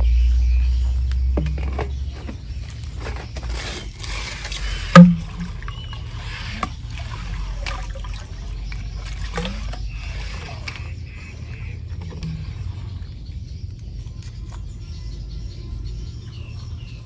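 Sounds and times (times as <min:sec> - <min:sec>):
water sloshing and trickling: 0:00.0 - 0:17.0
sharp knock: 0:05.0 - 0:05.5.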